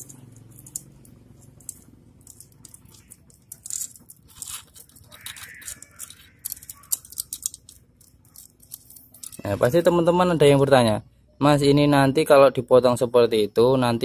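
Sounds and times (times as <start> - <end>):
cam chain clicking and rattling: 0.0 - 10.0.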